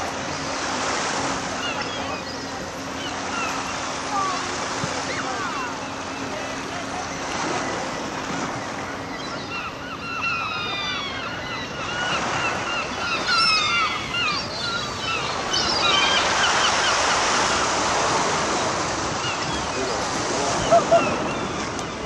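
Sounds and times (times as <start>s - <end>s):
gulls calling: 0.0s - 22.0s
surf hiss: 0.0s - 22.0s
wind: 0.0s - 22.0s.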